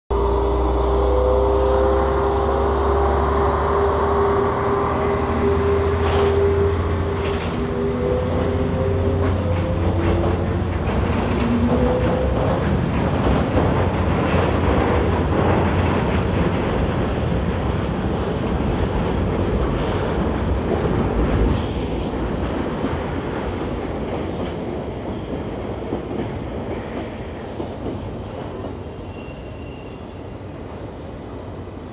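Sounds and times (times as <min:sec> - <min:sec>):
diesel locomotive engine droning: 0:00.1 - 0:31.9
wagons rumbling and clattering on rails: 0:00.2 - 0:31.6.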